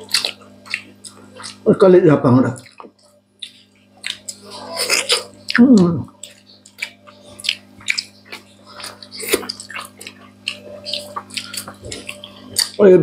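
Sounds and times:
people chewing and lip smacking: 0:00.0 - 0:13.0
steady low hum: 0:00.0 - 0:13.0
person humming mm: 0:04.4 - 0:06.1.

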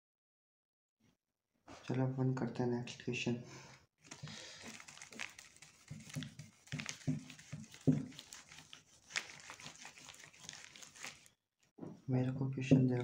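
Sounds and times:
cloth wiping plastic sheet: 0:04.0 - 0:11.3.

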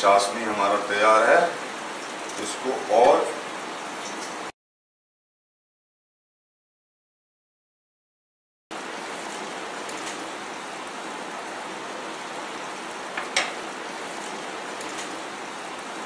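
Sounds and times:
syrup boiling in a pan: 0:08.8 - 0:16.0.

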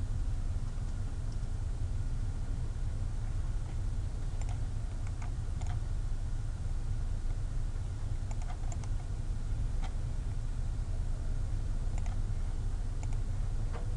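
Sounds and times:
steady low hum: 0:00.0 - 0:13.9
light computer input clicks: 0:04.4 - 0:05.8, 0:08.2 - 0:09.1, 0:12.0 - 0:12.2, 0:13.0 - 0:13.2.

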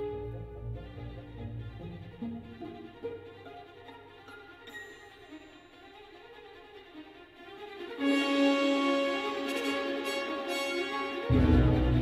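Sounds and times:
orchestral music on car stereo: 0:08.5 - 0:12.0.

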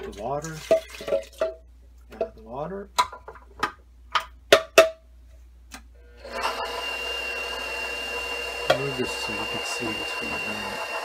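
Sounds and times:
stand mixer motor whining: 0:06.1 - 0:11.0.

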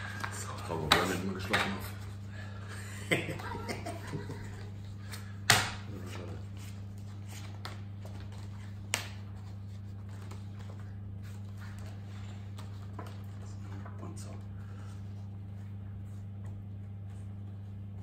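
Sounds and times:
low electrical hum: 0:00.0 - 0:18.0
cards slapped on wooden table: 0:05.1 - 0:05.9, 0:08.8 - 0:09.3.

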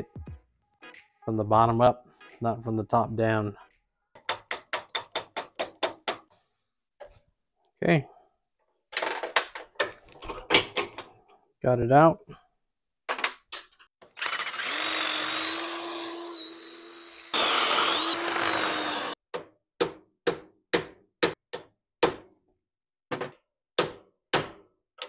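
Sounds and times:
hammer striking metal hinge: 0:04.2 - 0:06.3
cordless drill drilling metal: 0:14.0 - 0:19.2.

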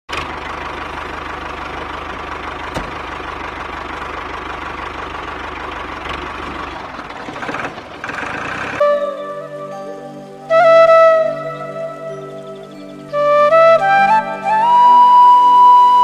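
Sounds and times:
motor puttering: 0:00.1 - 0:08.8.

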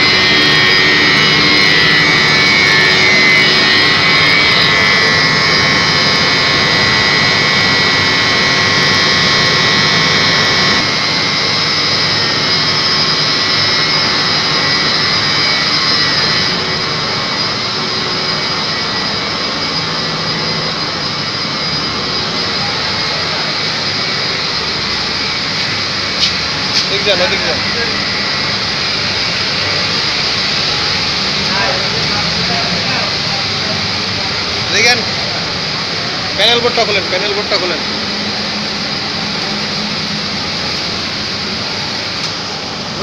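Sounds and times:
high steady motor whine: 0:00.0 - 0:43.0
pump motors roaring: 0:00.0 - 0:43.0.

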